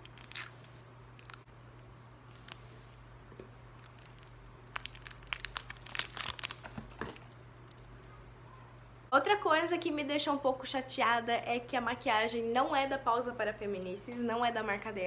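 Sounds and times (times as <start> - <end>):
plastic wrapping crinkling: 3.8 - 7.9.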